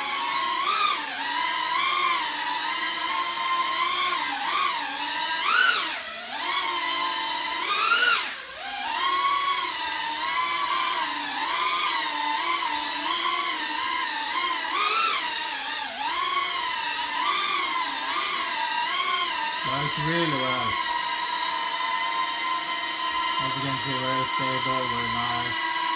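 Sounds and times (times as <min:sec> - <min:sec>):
drone motors whining: 0:18.3 - 0:22.0, 0:22.6 - 0:25.9.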